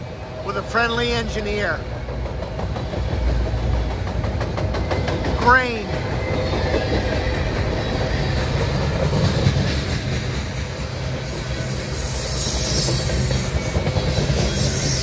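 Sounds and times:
freight cars rumbling on rails: 0:00.0 - 0:15.0
wheel hiss: 0:08.7 - 0:15.0.

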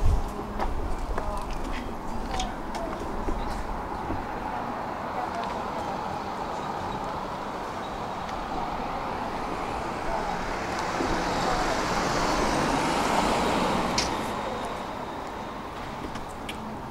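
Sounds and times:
street traffic: 0:00.0 - 0:16.9
vehicle passing: 0:02.0 - 0:16.2.

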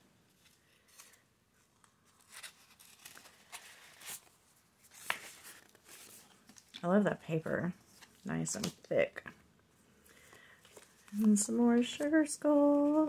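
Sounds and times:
paper envelope crinkling: 0:00.4 - 0:06.9, 0:10.6 - 0:13.0.

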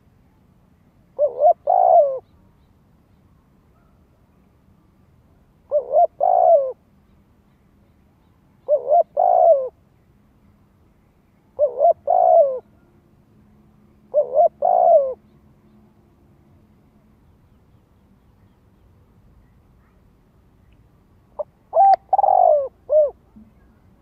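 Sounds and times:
dove cooing: 0:01.2 - 0:02.3, 0:05.7 - 0:06.8, 0:08.6 - 0:09.8, 0:11.6 - 0:12.9, 0:14.1 - 0:15.3, 0:21.4 - 0:23.7.

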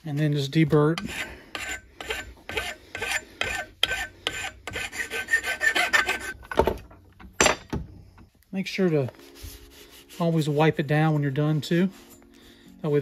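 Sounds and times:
hand file rasping on metal tube: 0:00.8 - 0:06.4.

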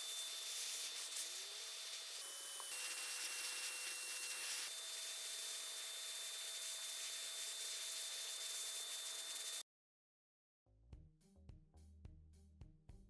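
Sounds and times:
paint spraying hiss: 0:00.0 - 0:09.6
spray gun motor whine: 0:00.0 - 0:09.6.

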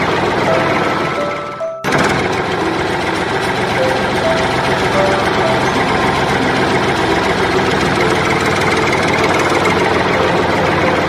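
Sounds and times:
motor running: 0:00.0 - 0:11.0.

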